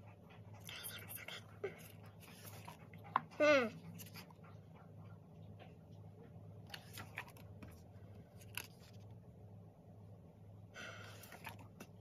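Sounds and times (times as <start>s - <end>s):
faint low hum: 0.0s - 12.0s
magazine pages turning: 8.4s - 9.1s.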